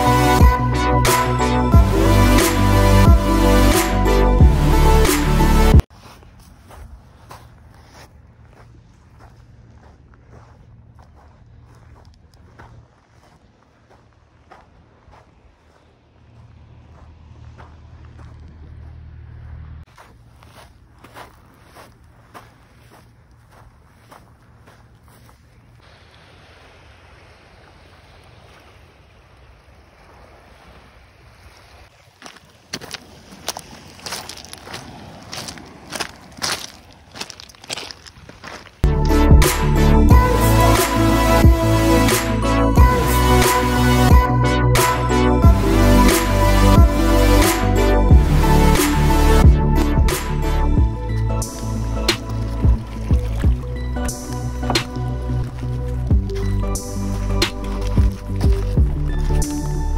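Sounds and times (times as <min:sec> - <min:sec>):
electronic background music: 0:00.0 - 0:05.8, 0:38.8 - 0:59.9
footsteps crunching on stones: 0:05.8 - 0:25.9, 0:31.8 - 0:38.9, 0:50.8 - 0:59.9
waves: 0:05.9 - 0:18.9, 0:19.9 - 0:38.7, 0:39.5 - 0:44.2, 0:44.8 - 0:59.9
seaside wind: 0:05.9 - 0:19.0, 0:19.8 - 0:38.8
low rumble: 0:38.8 - 0:59.9.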